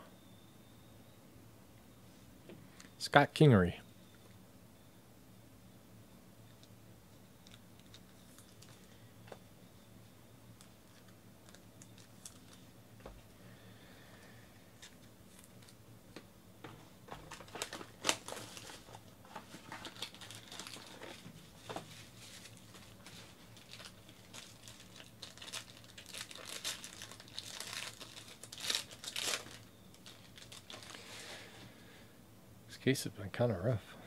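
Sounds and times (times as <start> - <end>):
plastic wrapper crinkling and tearing: 7.4 - 8.9, 10.6 - 12.6, 17.1 - 31.2.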